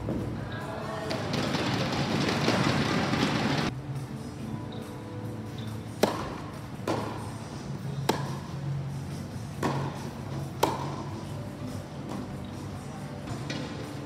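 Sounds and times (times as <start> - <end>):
racket hitting tennis ball: 5.9 - 7.3, 8.0 - 8.5, 9.5 - 11.2.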